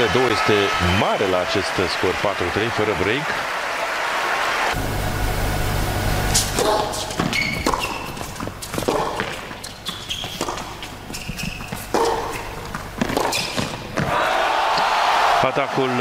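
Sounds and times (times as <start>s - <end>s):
racket striking ball: 6.4s - 9.7s, 10.3s - 14.1s
shoes squeaking on court: 6.4s - 14.1s
ball bouncing: 6.6s - 14.1s.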